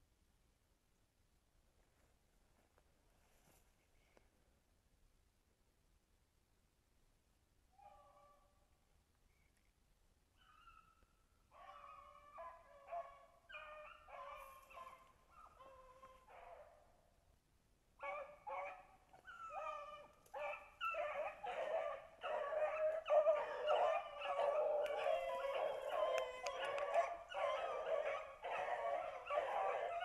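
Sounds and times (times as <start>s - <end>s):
pack of dogs baying: 18.0s - 30.0s.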